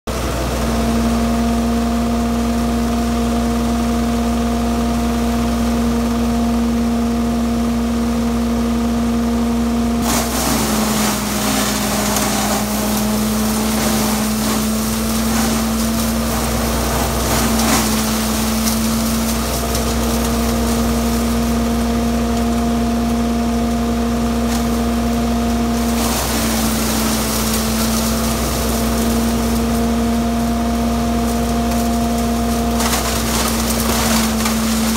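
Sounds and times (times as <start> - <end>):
tractor humming: 0.1 - 34.9
branches being chipped: 10.0 - 21.4, 31.3 - 34.9.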